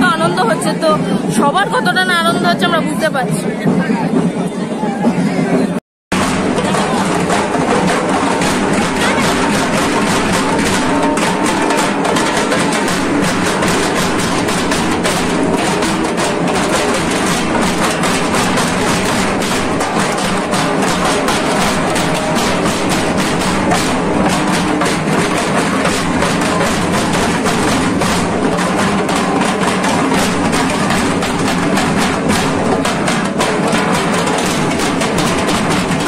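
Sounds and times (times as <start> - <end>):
barrel drums beaten with sticks: 3.2 - 36.0.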